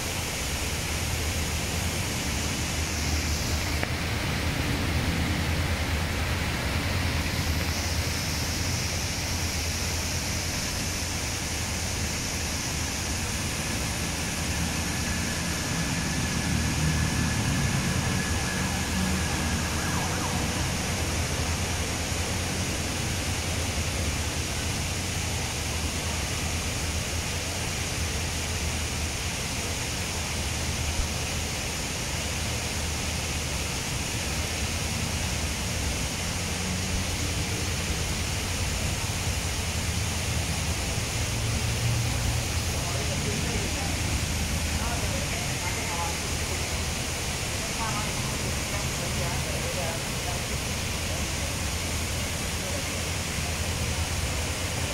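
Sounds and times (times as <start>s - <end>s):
steady rushing noise: 0.0s - 54.9s.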